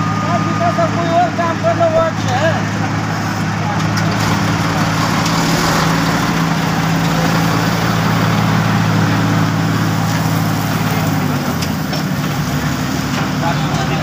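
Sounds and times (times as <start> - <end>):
heavy diesel engines running: 0.0 - 14.0.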